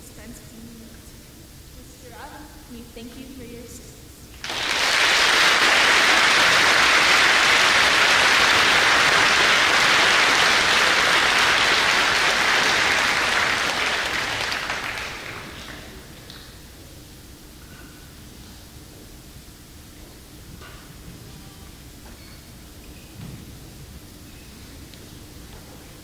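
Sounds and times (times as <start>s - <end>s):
audience applauding: 4.4s - 16.6s.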